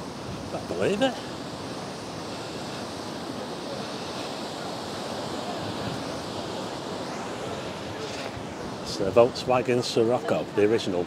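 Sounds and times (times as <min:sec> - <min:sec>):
rough sea surf: 0:00.0 - 0:11.0
wind: 0:00.0 - 0:11.0.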